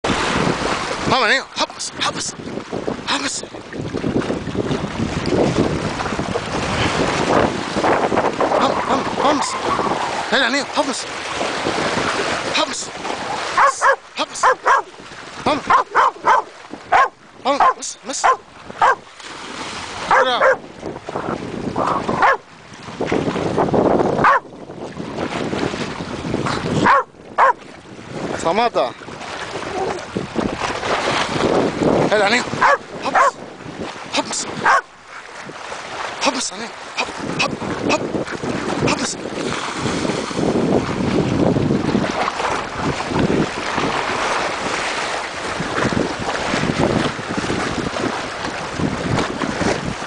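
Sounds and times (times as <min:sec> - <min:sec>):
sea water rushing: 0:00.0 - 0:50.0
wind on microphone: 0:00.0 - 0:50.0
dog yelping: 0:13.6 - 0:14.9, 0:15.7 - 0:19.1, 0:20.1 - 0:20.6, 0:21.8 - 0:22.4, 0:24.2 - 0:24.5, 0:26.8 - 0:27.6, 0:32.6 - 0:33.4, 0:34.6 - 0:34.9.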